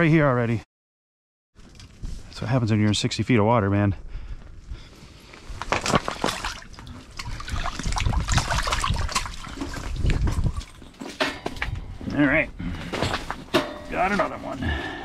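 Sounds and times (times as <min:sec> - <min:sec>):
fish splashing in water: 0:06.0 - 0:10.9
water running off fish: 0:06.0 - 0:11.0.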